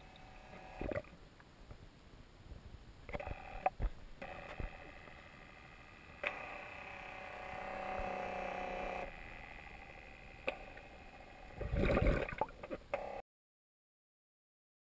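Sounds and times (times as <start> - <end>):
electric propeller motors whining: 3.2 - 11.6.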